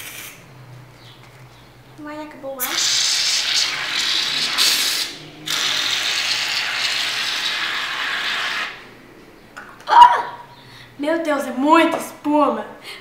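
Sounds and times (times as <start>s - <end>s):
aerosol can spraying: 0.0s - 0.4s, 2.6s - 8.8s.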